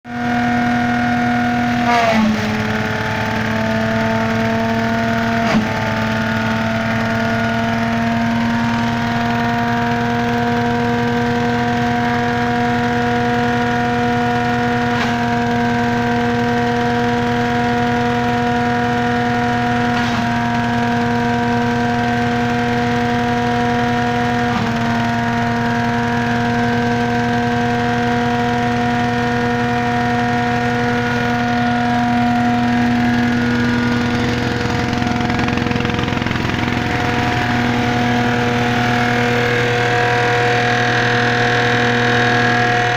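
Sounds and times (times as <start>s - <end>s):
tractor diesel engine running: 0.0s - 42.9s
engine knock under load: 2.4s - 42.9s.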